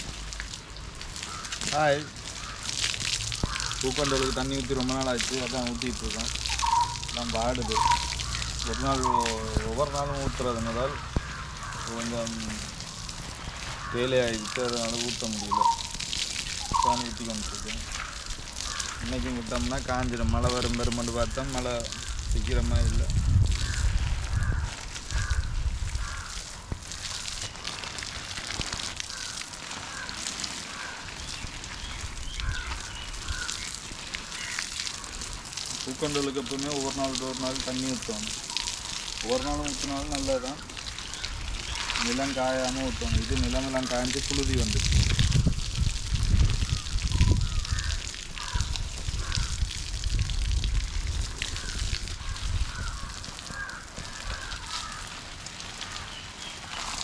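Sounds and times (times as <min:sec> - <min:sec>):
hose spraying water on soil: 0:00.0 - 0:57.0
short repeated calls: 0:06.3 - 0:09.6, 0:15.4 - 0:16.0, 0:16.6 - 0:17.2.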